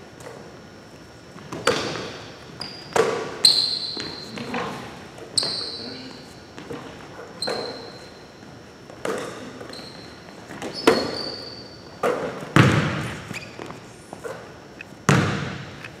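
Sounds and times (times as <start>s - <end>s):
sneakers squeaking on floor: 1.3s - 16.0s
basketball bouncing on hardwood floor: 12.0s - 13.7s, 15.1s - 15.8s.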